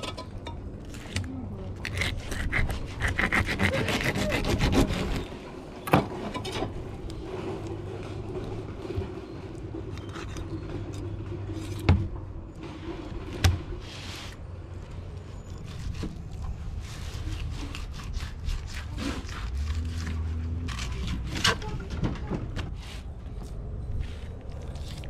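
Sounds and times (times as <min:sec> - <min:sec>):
knife sawing through fish: 0:01.8 - 0:05.3, 0:15.6 - 0:20.0.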